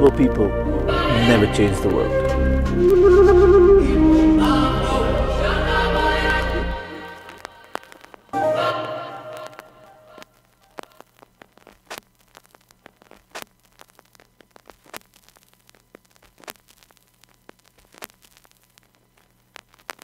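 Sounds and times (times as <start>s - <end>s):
crackling static clicks: 6.1s - 20.0s.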